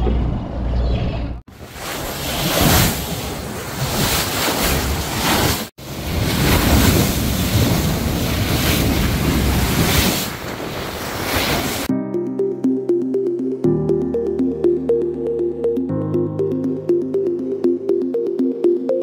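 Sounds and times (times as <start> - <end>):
sea water rushing: 1.5 - 11.9
wind buffeting microphone: 5.8 - 11.9.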